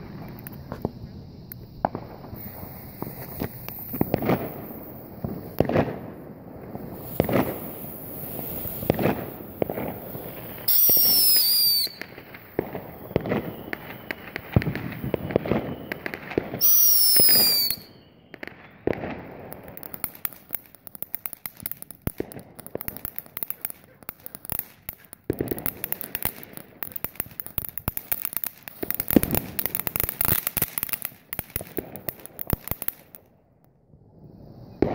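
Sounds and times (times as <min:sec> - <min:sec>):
firework hissing and crackling: 0:00.0 - 0:34.9.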